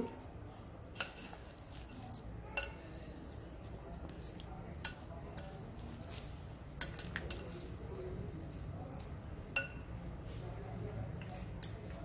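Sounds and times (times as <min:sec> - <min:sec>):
spatula scraping and clinking bowl: 0:00.8 - 0:07.8.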